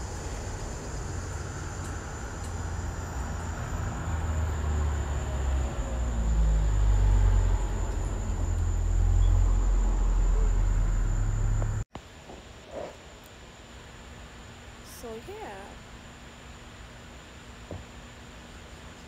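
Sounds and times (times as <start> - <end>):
low rumbling: 0.0 - 11.9.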